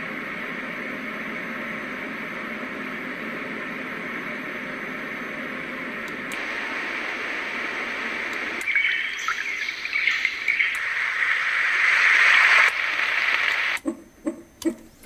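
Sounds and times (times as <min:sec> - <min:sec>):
steady rushing noise: 0:00.0 - 0:13.8
bird chirps from speaker: 0:08.6 - 0:10.8.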